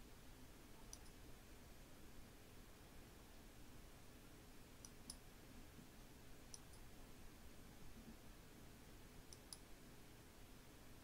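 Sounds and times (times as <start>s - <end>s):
low room hum: 0.0s - 11.0s
computer mouse clicks: 0.8s - 1.2s, 4.8s - 5.2s, 6.5s - 6.9s, 9.3s - 9.7s.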